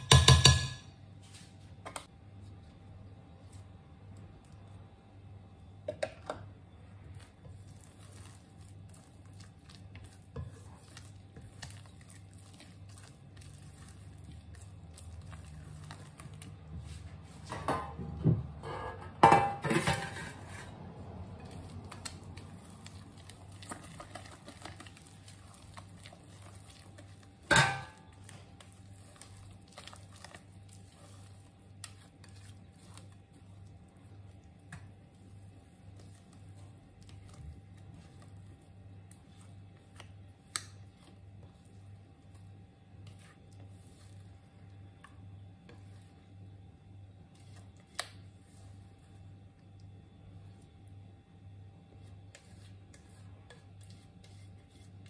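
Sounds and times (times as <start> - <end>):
metal pan clanking: 0.0 - 0.8, 27.5 - 28.0
spatula knocking glass bowl: 0.0 - 0.8.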